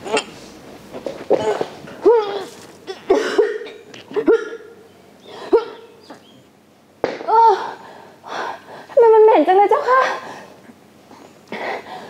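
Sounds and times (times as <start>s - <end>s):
woman making choked sounds: 1.3s - 4.6s.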